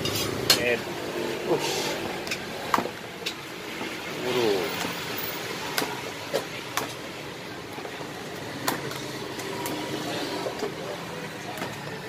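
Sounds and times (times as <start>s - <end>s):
street traffic hum: 0.0s - 12.0s.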